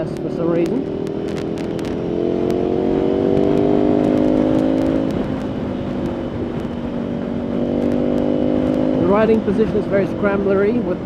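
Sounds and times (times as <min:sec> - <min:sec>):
motorcycle engine accelerating: 0:00.0 - 0:11.0
wind rushing past microphone: 0:00.0 - 0:11.0.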